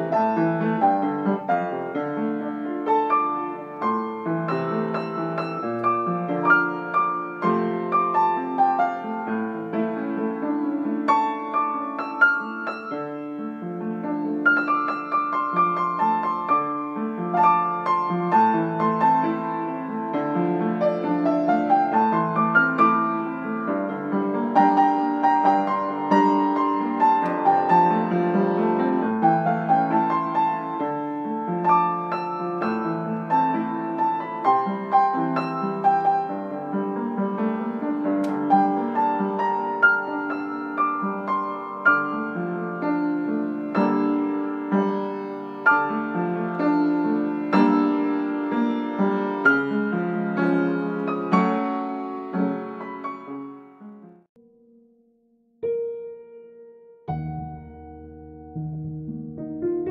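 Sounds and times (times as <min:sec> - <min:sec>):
piano music: 0:00.0 - 0:59.9.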